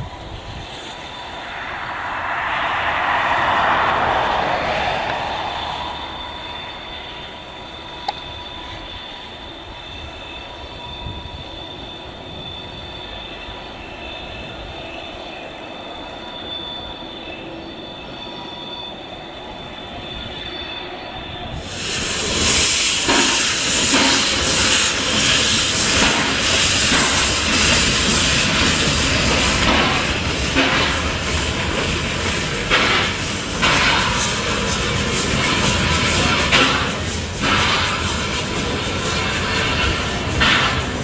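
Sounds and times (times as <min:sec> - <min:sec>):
steam locomotive running: 0:00.0 - 0:41.0
steam hissing from drain cocks: 0:21.6 - 0:31.4.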